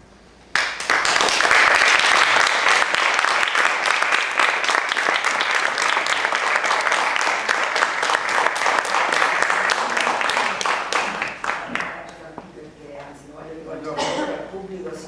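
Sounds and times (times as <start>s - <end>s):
audience clapping: 0.5s - 12.3s.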